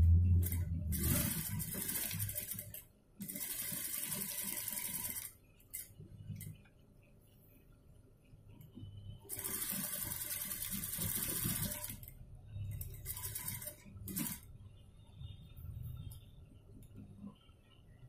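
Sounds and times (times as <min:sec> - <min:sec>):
sewing machine stitching: 0:00.4 - 0:05.3, 0:09.3 - 0:12.1, 0:12.8 - 0:14.5.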